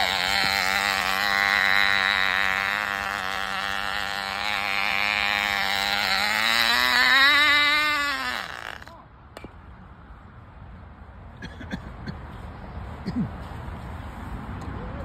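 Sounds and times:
small engine buzzing at high speed: 0:00.0 - 0:08.9.

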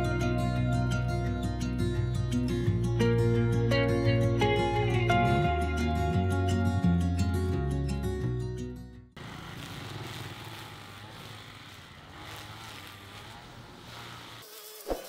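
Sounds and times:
engine running: 0:09.2 - 0:15.0
thin wavering buzz: 0:09.6 - 0:15.0.

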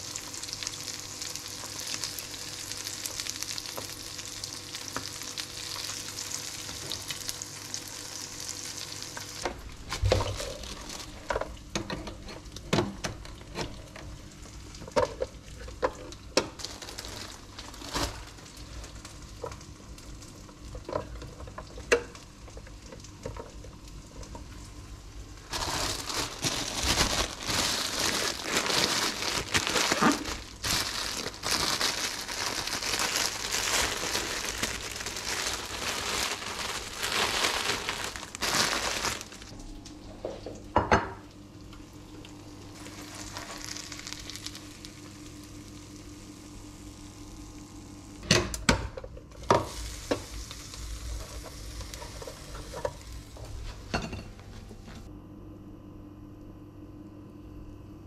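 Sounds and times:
eggs sizzling in oil: 0:00.0 - 0:11.8, 0:27.4 - 0:39.6, 0:41.7 - 0:48.2, 0:49.4 - 0:53.7
plastic bag crinkling: 0:09.2 - 0:11.3, 0:16.6 - 0:18.9, 0:25.4 - 0:39.6, 0:42.8 - 0:45.2.

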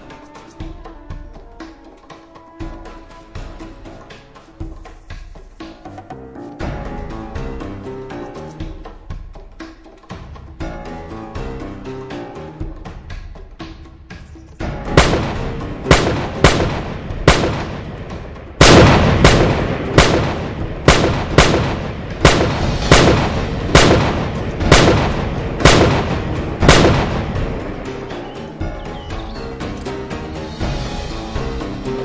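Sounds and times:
music: 0:00.0 - 0:32.0
rifle gunshots: 0:14.9 - 0:18.0, 0:18.6 - 0:27.6.

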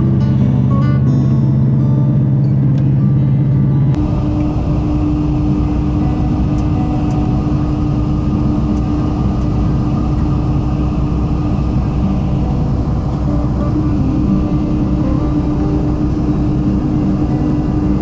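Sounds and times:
diesel railcar rumbling: 0:00.0 - 0:18.0.

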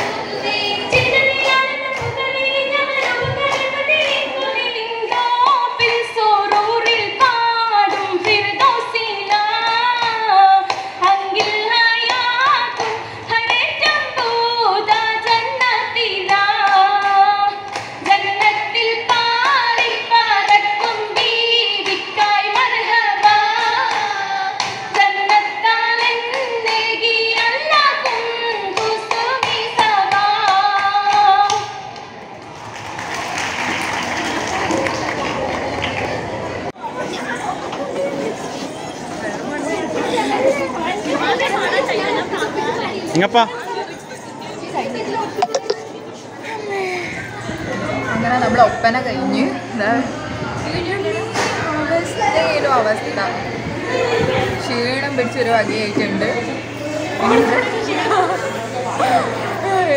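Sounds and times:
women singing group melody: 0:00.0 - 0:31.8
rhythmic hand claps: 0:00.0 - 0:36.4.

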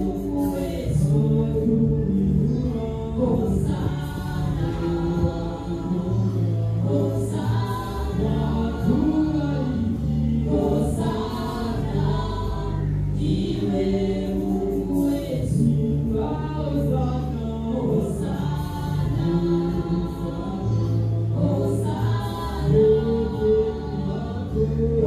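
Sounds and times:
gospel choir singing: 0:00.0 - 0:25.0.

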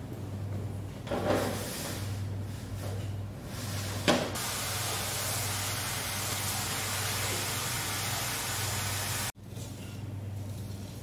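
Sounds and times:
water spraying from hose: 0:04.4 - 0:09.3.

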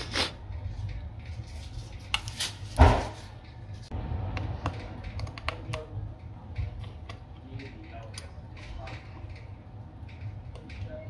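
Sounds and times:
steady low hum: 0:00.0 - 0:11.0
loud thump: 0:02.8 - 0:03.2.

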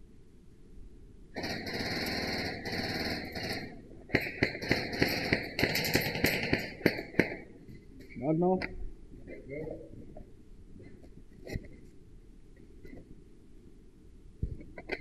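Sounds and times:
airsoft gun bursts echoing: 0:01.4 - 0:07.5.

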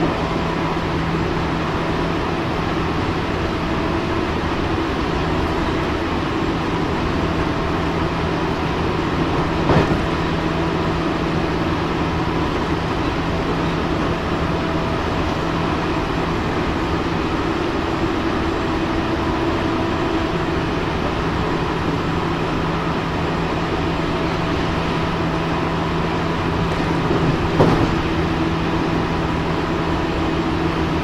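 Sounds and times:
continuous hum: 0:00.0 - 0:31.0
train rail running noise: 0:00.0 - 0:31.0
train clatter: 0:09.2 - 0:10.6, 0:26.5 - 0:28.4.

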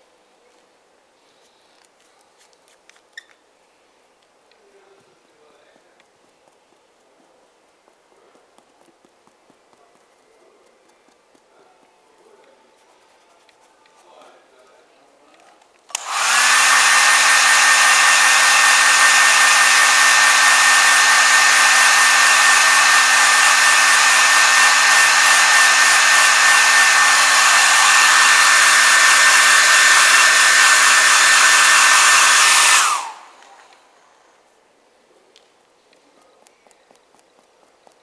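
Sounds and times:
hot-air blower whining: 0:15.9 - 0:33.9.

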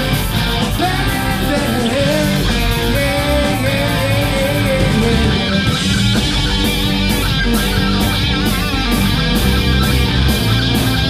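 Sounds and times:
drums: 0:00.0 - 0:11.0
electric guitars: 0:00.0 - 0:11.0
keyboard: 0:00.0 - 0:11.0
man singing: 0:00.6 - 0:05.7.

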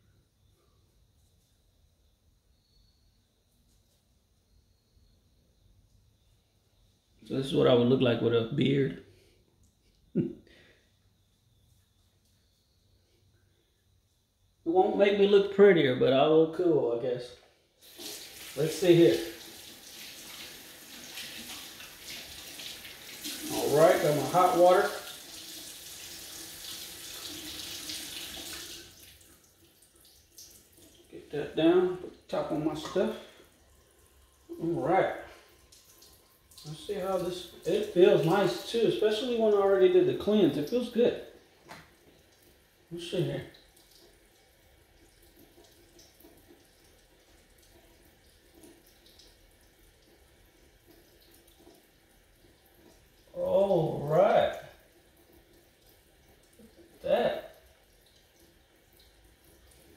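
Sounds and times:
faucet water splashing into sink: 0:17.8 - 0:31.2, 0:31.9 - 0:59.9.

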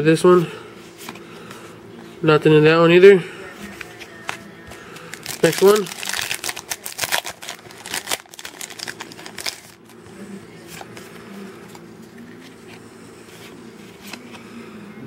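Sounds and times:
cards rustling and clicking: 0:03.7 - 0:10.0, 0:10.7 - 0:14.5
foil wrapper crinkling and tearing: 0:05.0 - 0:09.9.

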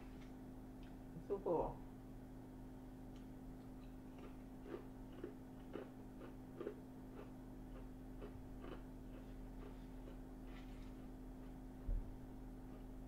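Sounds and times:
person chewing salad: 0:03.1 - 0:11.8, 0:12.5 - 0:13.0.

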